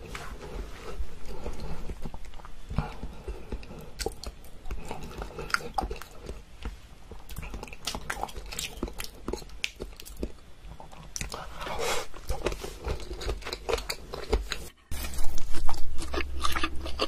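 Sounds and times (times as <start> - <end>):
person chewing and biting food: 0.4 - 17.0.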